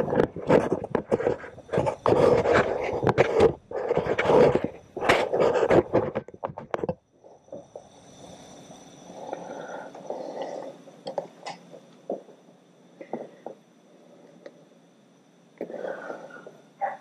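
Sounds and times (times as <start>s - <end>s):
close rustling and scraping: 0.0s - 7.4s.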